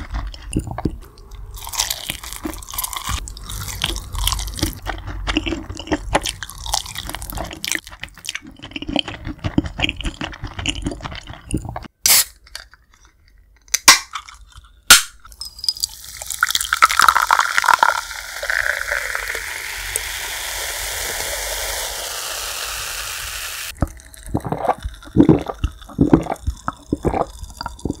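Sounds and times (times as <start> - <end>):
person gulping: 0.0 - 11.9, 15.8 - 22.0, 23.7 - 28.0
chewing and crunching food: 0.0 - 12.0, 23.7 - 28.0
cola pouring into glass: 15.4 - 28.0
soda fizzing: 15.6 - 28.0.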